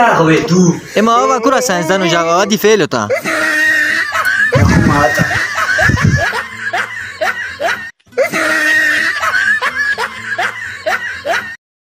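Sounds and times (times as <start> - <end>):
laugh track laughter: 3.1 - 11.6.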